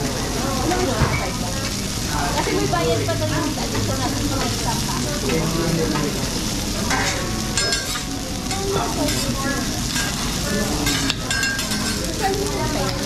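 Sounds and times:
food sizzling on a griddle: 0:00.0 - 0:13.0.

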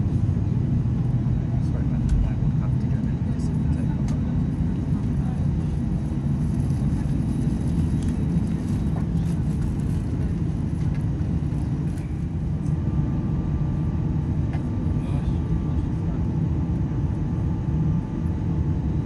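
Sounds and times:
jet engine cabin rumble: 0:00.0 - 0:19.0.

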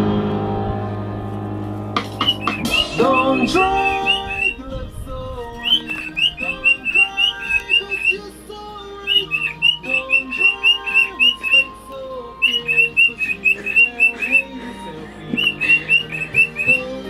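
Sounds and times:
background music: 0:00.0 - 0:17.0
cockatiel chirping: 0:02.1 - 0:04.6, 0:05.6 - 0:08.3, 0:09.0 - 0:14.6, 0:15.2 - 0:17.0.

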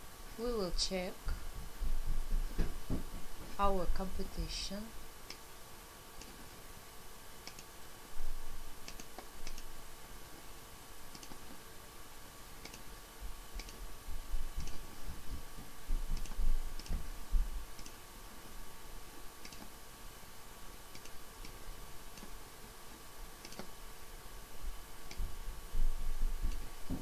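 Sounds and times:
faint electrical hum: 0:00.0 - 0:27.0
computer mouse clicking: 0:07.4 - 0:07.7, 0:08.8 - 0:09.7, 0:11.1 - 0:11.6, 0:12.6 - 0:12.9, 0:13.6 - 0:13.8, 0:14.6 - 0:14.9, 0:16.2 - 0:16.9, 0:17.7 - 0:18.0, 0:19.4 - 0:19.7, 0:20.9 - 0:22.4, 0:23.4 - 0:23.7.

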